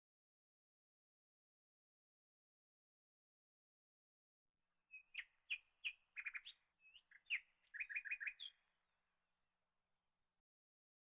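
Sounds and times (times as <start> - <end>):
bird chirping and trilling: 4.9 - 8.6.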